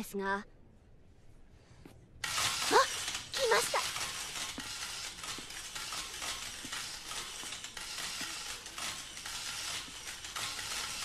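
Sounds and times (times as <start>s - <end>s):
camera shutters clicking: 2.2s - 11.0s.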